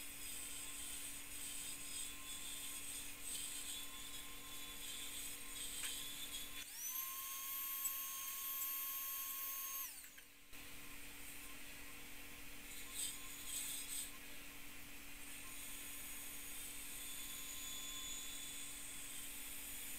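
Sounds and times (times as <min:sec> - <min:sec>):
milling spindle high whine: 0:00.2 - 0:10.7, 0:15.2 - 0:19.9.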